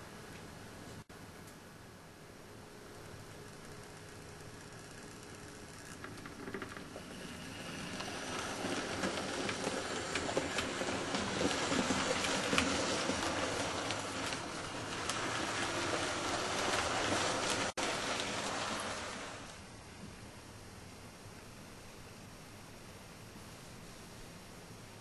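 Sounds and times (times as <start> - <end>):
model train wheels on rail: 2.8 - 19.7.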